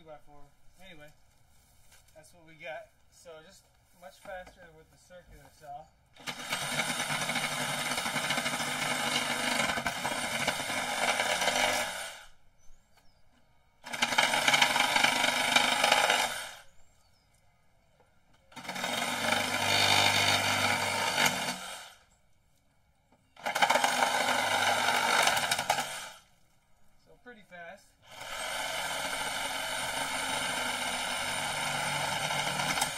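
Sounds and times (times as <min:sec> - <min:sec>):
reciprocating saw cutting wood: 0:06.2 - 0:12.3, 0:13.8 - 0:16.7, 0:18.6 - 0:22.1, 0:23.4 - 0:26.3, 0:28.1 - 0:32.9.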